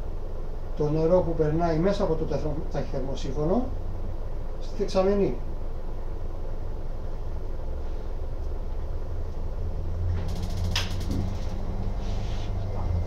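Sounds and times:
electric water pump running: 10.0 - 12.0.

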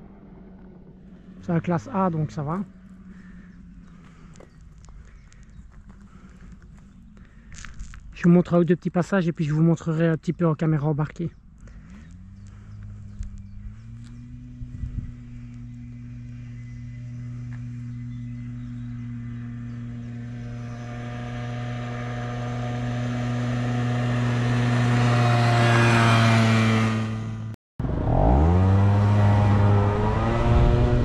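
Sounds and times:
scooter engine accelerating: 0.0 - 8.0, 11.6 - 31.0
scooter engine passing by: 11.7 - 31.0.

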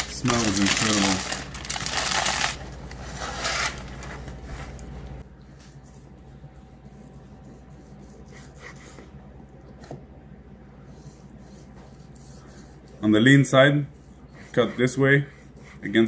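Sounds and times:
aluminium foil crinkling: 0.0 - 4.8
knife sawing through meat: 13.9 - 16.0.

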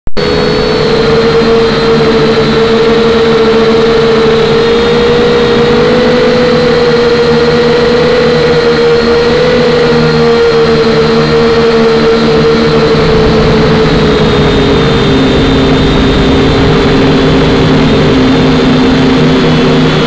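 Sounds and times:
drone motors humming: 0.1 - 20.0.

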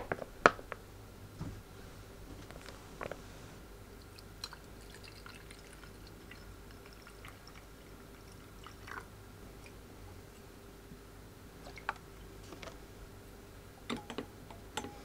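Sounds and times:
liquid pouring into glass mug: 4.0 - 10.4
faint dripping and splashing: 4.0 - 10.6, 11.6 - 12.8.

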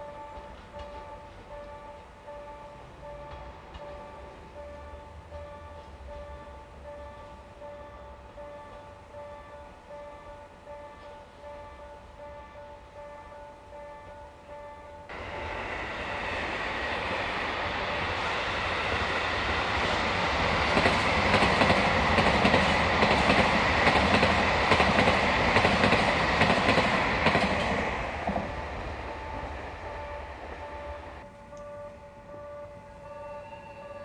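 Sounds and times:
train passing: 0.0 - 34.0
wheels clacking over rail joints: 17.0 - 29.8.

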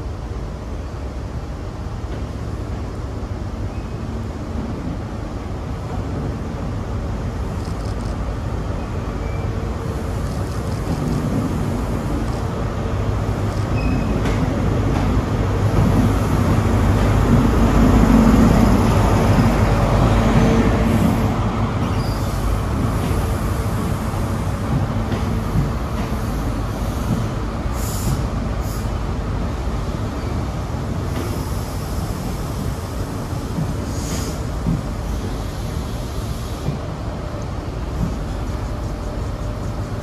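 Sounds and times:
diesel locomotive rumbling: 0.0 - 40.0
short air hisses: 26.7 - 29.0, 33.8 - 34.5.

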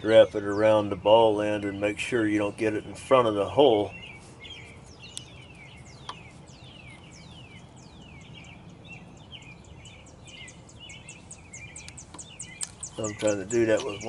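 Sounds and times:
birds whistling: 0.0 - 14.0
high bird chirps: 0.0 - 14.0.

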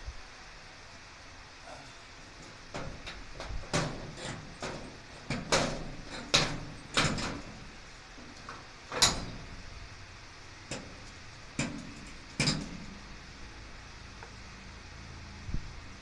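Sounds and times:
metal clanks and knocks: 2.3 - 9.7, 10.7 - 13.0.

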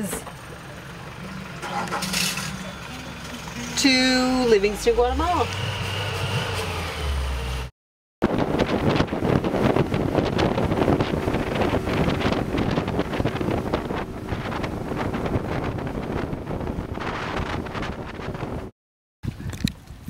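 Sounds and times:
wind buffeting microphone: 8.2 - 20.0.

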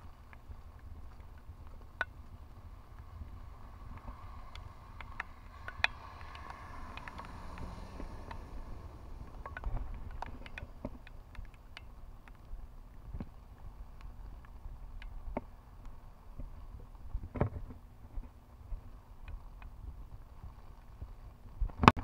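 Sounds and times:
raindrops ticking on camera: 0.0 - 22.0
wind rumble on microphone: 0.0 - 22.0
truck tyre spray through floodwater: 2.6 - 9.4.

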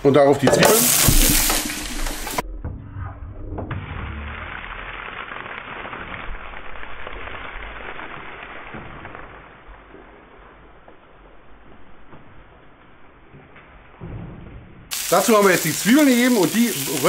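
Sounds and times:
onions sizzling in hot oil: 0.6 - 2.4, 4.0 - 9.3, 14.9 - 17.0.

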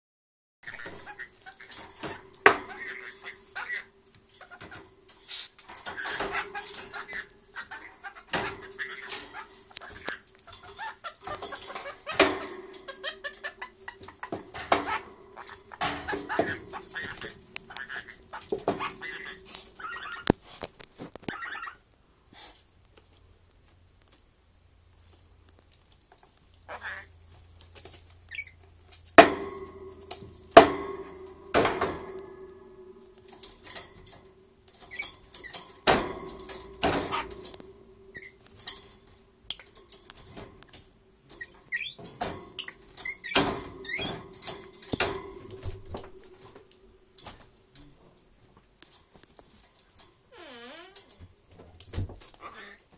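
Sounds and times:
knocks and rattles against metal cage: 0.6 - 20.4, 26.8 - 48.0.

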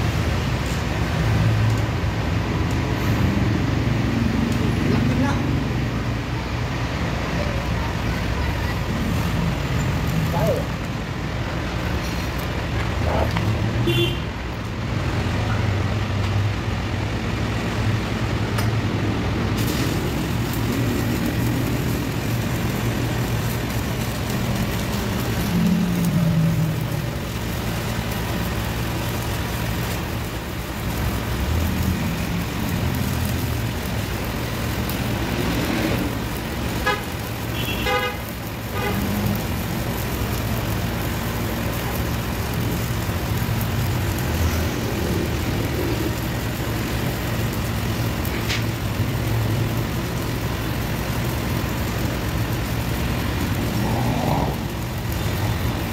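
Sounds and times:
street traffic engines: 0.0 - 55.9
welding arc crackling and hissing: 0.0 - 55.9
car horn toots: 37.6 - 38.2.

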